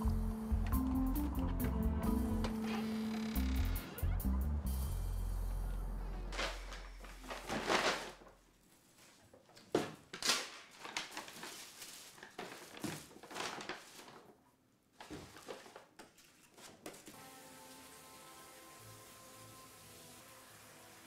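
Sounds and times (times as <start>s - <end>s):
paper bag rustling and crinkling: 6.2s - 17.2s
plastic wrap crinkling: 6.3s - 17.1s.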